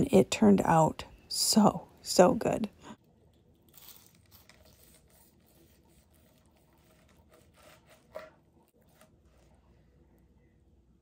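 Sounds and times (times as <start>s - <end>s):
knife sawing through crispy crust: 3.7s - 9.5s.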